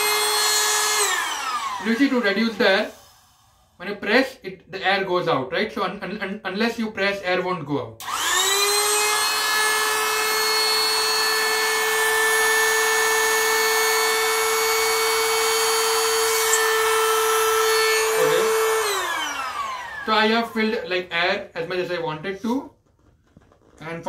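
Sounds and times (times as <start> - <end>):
electric air pump whining: 0.0 - 3.8, 8.0 - 21.0.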